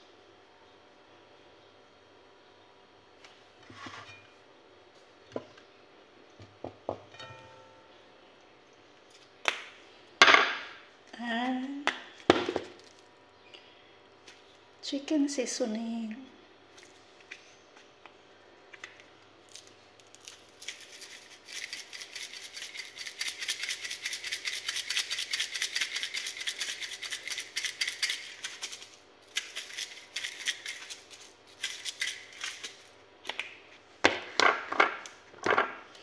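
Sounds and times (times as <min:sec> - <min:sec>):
spice shaker rattling: 0:19.5 - 0:33.0.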